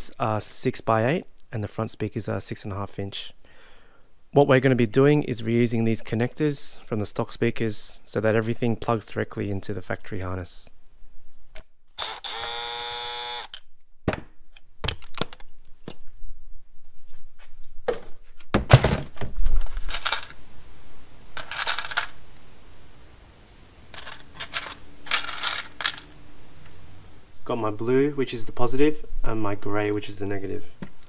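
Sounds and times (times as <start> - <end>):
cordless drill running: 12.0 - 13.6
plastic parts clicking and knocking: 13.5 - 16.0, 18.6 - 20.4, 21.4 - 22.2, 23.9 - 26.1.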